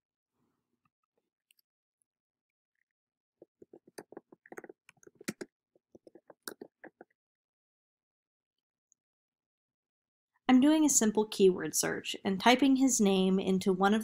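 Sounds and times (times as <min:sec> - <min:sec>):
typing on computer keyboard: 0:06.0 - 0:07.1.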